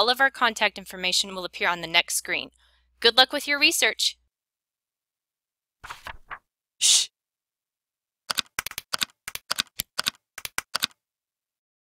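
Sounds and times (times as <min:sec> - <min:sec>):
sharp typing clicks: 0:08.3 - 0:11.0.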